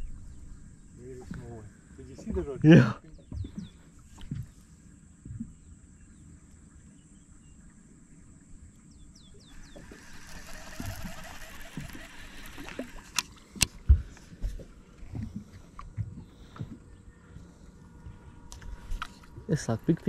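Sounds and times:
bird chirping: 8.9 - 13.2.

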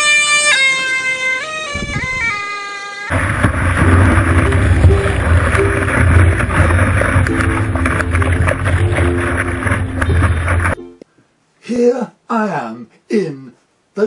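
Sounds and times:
surf rushing: 3.1 - 10.8
wind buffeting microphone: 3.1 - 10.8
faint tune of short notes: 3.8 - 11.1.

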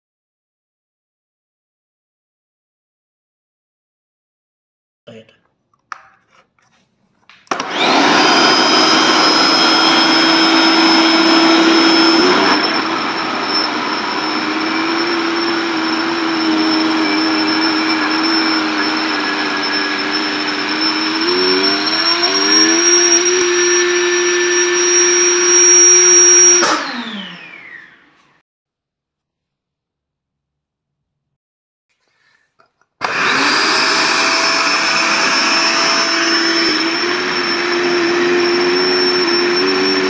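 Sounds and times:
electric air pump humming and whining: 7.5 - 28.4, 33.0 - 40.0.

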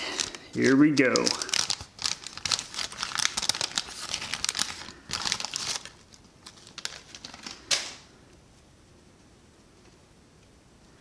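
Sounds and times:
wax paper wrapper crinkling and tearing: 0.0 - 8.0.

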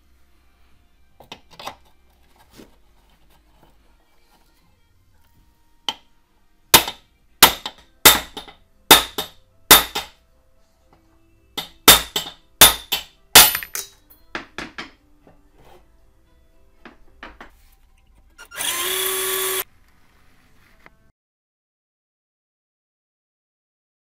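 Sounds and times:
hammer striking metal tool: 6.8 - 10.2, 11.6 - 15.0.

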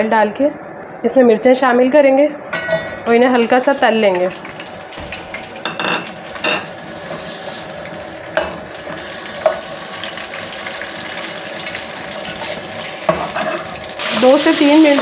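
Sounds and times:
chillies sizzling in oil: 3.0 - 15.0.

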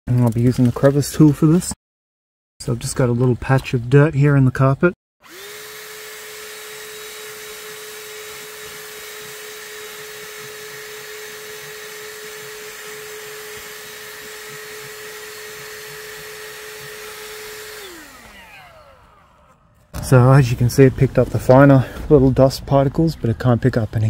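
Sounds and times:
hand vacuum motor whine: 5.2 - 20.0.

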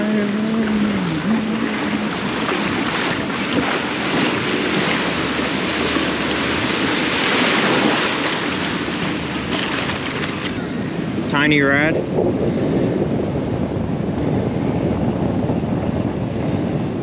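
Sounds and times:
surf breaking: 0.0 - 10.6
wind buffeting microphone: 0.0 - 17.0.

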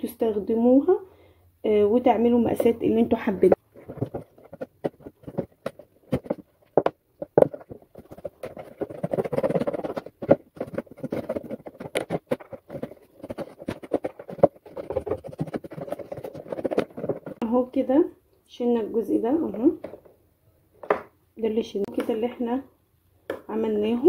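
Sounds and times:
knife cutting plastic tub: 3.6 - 17.4.

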